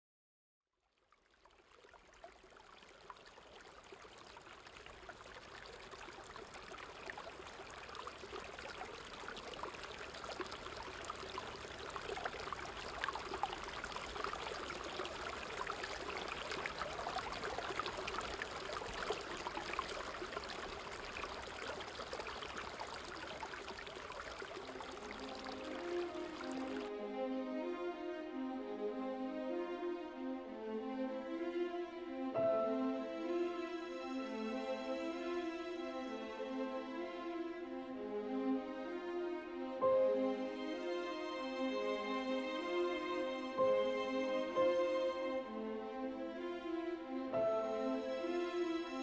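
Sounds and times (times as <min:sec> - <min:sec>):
river water rushing: 0:03.1 - 0:26.9.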